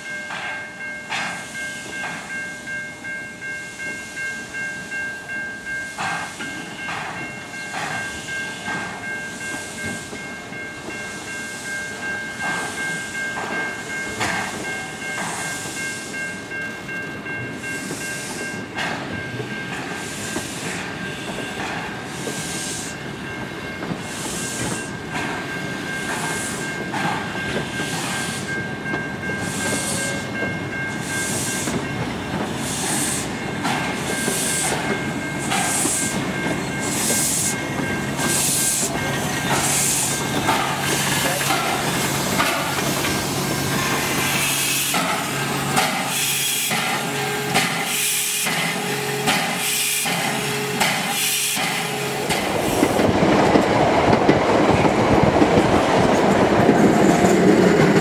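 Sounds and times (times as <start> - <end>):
steam locomotive exhaust puffing: 17.5 - 23.1, 23.9 - 53.2.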